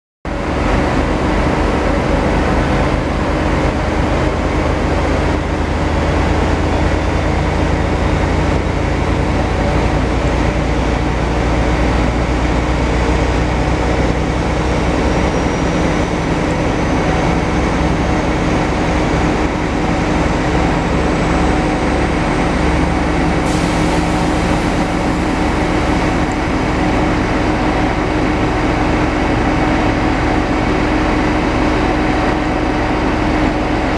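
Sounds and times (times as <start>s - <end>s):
diesel locomotive engine droning: 0.3s - 33.9s
steady hum: 0.3s - 33.9s.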